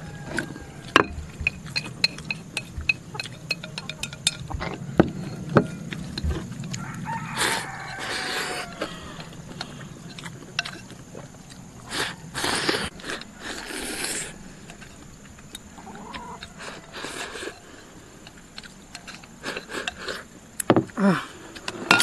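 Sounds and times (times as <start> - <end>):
chewing: 0.1 - 20.3
slurps: 11.9 - 14.4.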